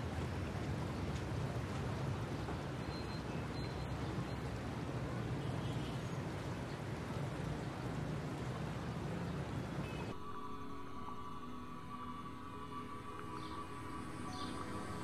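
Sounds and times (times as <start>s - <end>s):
motorbike and scooter traffic: 0.0s - 10.2s
ambient music tones: 10.1s - 15.0s.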